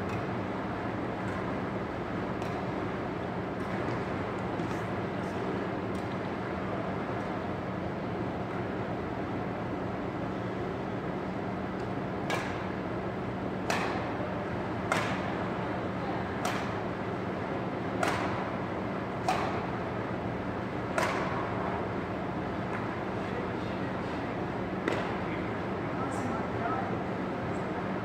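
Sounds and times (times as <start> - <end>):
steady hum: 0.0 - 28.0
racket hitting shuttlecock: 2.4 - 2.7, 12.2 - 12.6, 13.6 - 14.2, 14.8 - 15.3, 16.4 - 16.8, 18.0 - 18.4, 19.2 - 19.7, 20.9 - 21.5.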